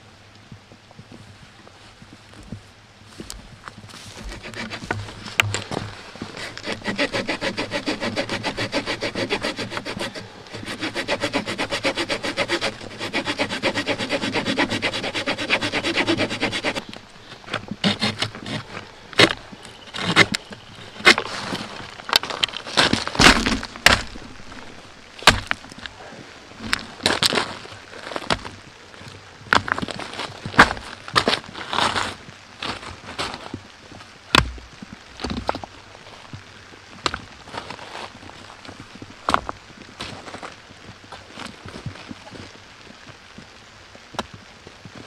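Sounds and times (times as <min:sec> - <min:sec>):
hand saw cutting a branch: 0:04.2 - 0:05.7, 0:06.3 - 0:17.0, 0:17.8 - 0:21.3
wood and stones knocking: 0:04.2 - 0:07.6, 0:16.7 - 0:24.6, 0:25.2 - 0:26.0.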